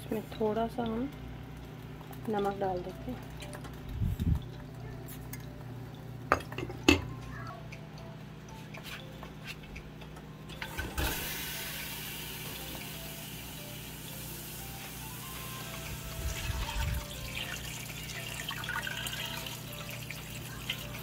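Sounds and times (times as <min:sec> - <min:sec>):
tap water running into pot: 0:15.5 - 0:21.0.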